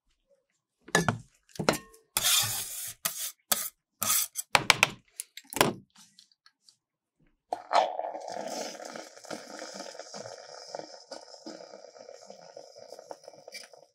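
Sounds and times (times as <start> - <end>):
metal spatula scraping steel plate: 2.2 - 4.5.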